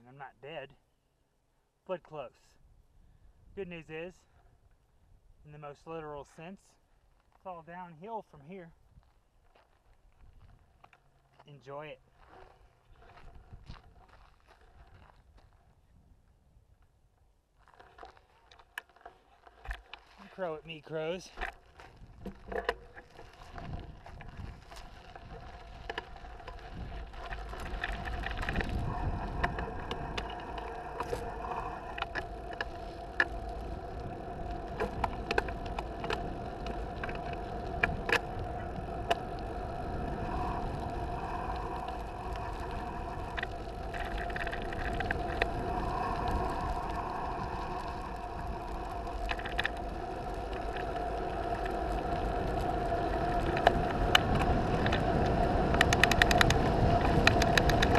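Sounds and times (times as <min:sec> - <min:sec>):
gravel and bike rattles: 0:02.0 - 0:57.9
bike tyre rumble: 0:08.4 - 0:57.9
wind rush on microphone: 0:21.9 - 0:57.9.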